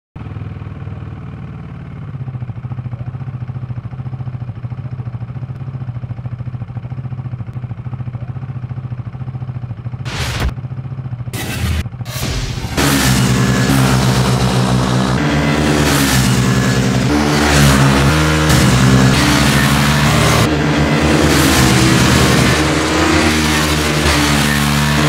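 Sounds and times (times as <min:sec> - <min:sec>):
motorcycle engine idling: 0:00.2 - 0:12.0, 0:12.8 - 0:25.0
engine revving bursts: 0:10.1 - 0:10.6, 0:11.3 - 0:25.0.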